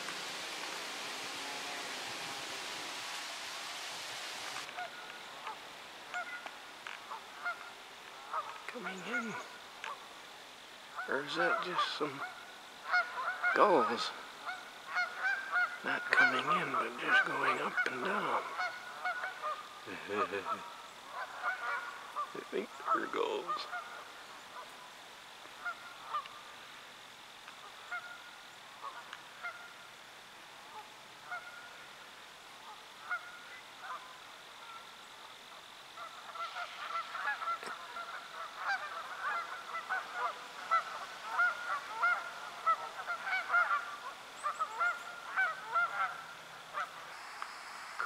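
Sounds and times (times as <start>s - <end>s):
flock of birds calling: 0.0s - 10.2s, 10.9s - 25.0s, 25.6s - 26.6s, 35.5s - 48.0s.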